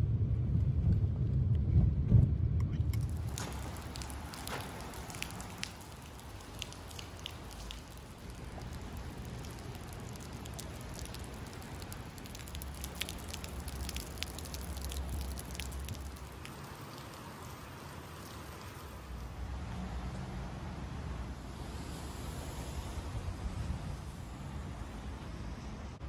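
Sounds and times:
low rumble: 0.0s - 4.3s
raindrop hits: 2.9s - 19.2s
rain hissing on pavement: 2.9s - 20.3s.

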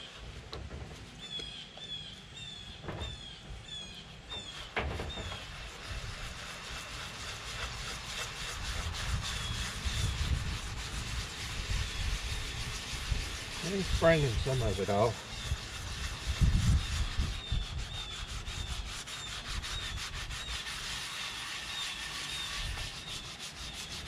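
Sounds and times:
scouring pad scrubbing metal pot: 4.4s - 24.0s.

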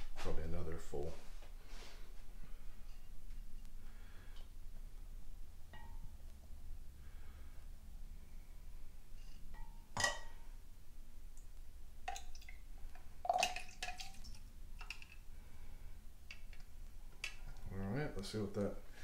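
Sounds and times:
glass clinking: 5.7s - 6.1s, 9.5s - 10.5s, 13.2s - 14.2s
liquid dripping: 11.4s - 15.3s.

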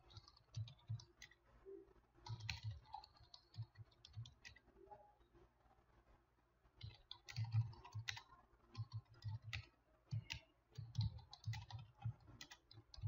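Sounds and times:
computer keyboard typing: 0.0s - 1.4s, 2.2s - 4.6s, 6.8s - 13.0s.

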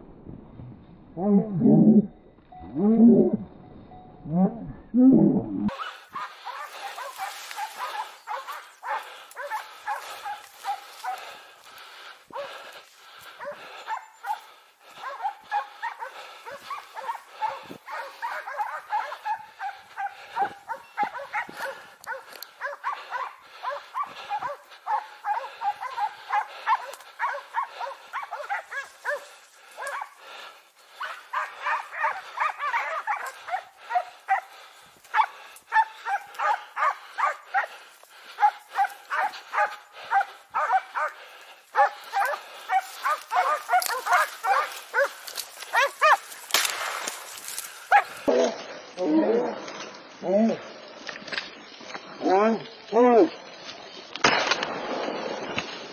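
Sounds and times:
dogs barking: 5.7s - 46.5s, 47.3s - 48.3s.

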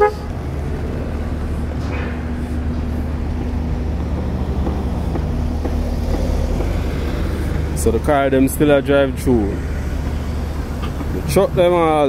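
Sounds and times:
car horn toot: 0.0s - 0.4s
traffic noise: 0.0s - 12.0s.

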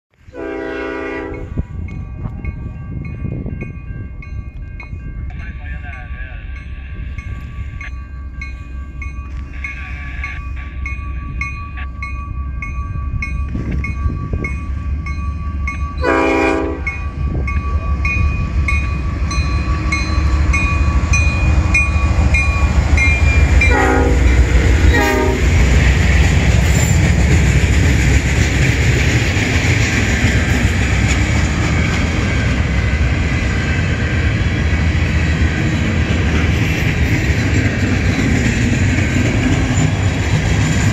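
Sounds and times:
diesel locomotive engines: 0.1s - 40.9s
locomotive air horn blasts: 0.3s - 1.6s, 16.0s - 17.0s, 23.7s - 25.5s
train wheels rumbling and clattering: 0.8s - 40.9s.

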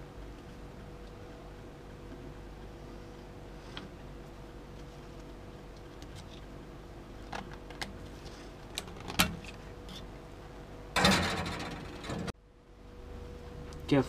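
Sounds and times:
metal clatter: 11.0s - 12.4s.

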